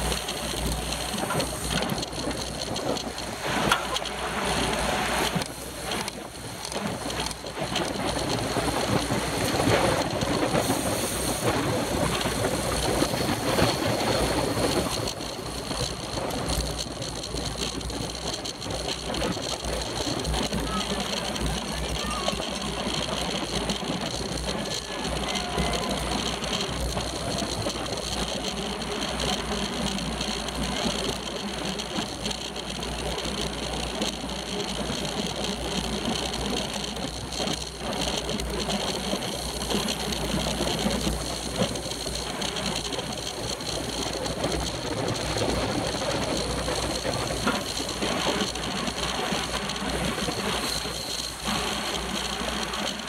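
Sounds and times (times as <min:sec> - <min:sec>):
bicycle mechanical rattle: 0:00.0 - 0:53.0
road noise: 0:00.0 - 0:53.0.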